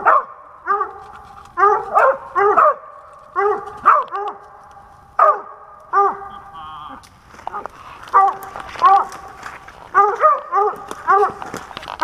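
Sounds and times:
dog barking: 0.0s - 4.5s, 5.2s - 6.4s, 7.5s - 9.3s, 9.9s - 11.6s.

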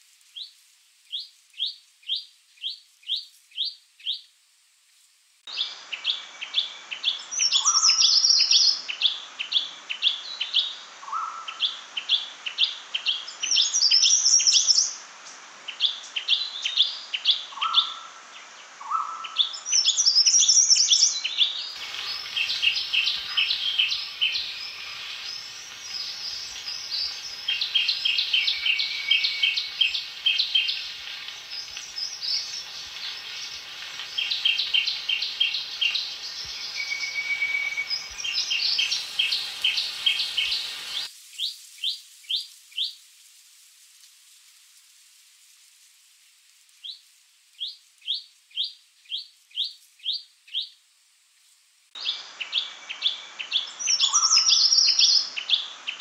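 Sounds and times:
steady background hiss: 0.0s - 56.0s
bird song with trills: 5.5s - 12.2s, 18.8s - 42.9s, 52.0s - 56.0s.

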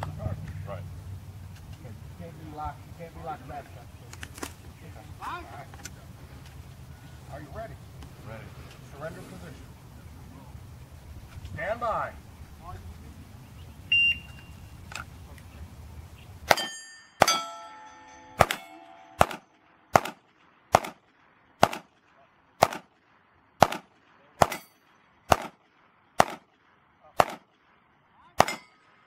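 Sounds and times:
pistol shots: 16.5s - 17.5s, 18.4s - 29.0s
steel plates ringing: 16.5s - 19.6s, 24.5s - 24.8s, 28.4s - 28.8s.

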